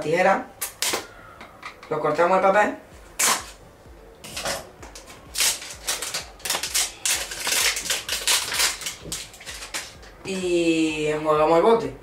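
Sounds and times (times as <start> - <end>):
label tearing and scraping: 3.2 - 3.6, 4.2 - 10.0.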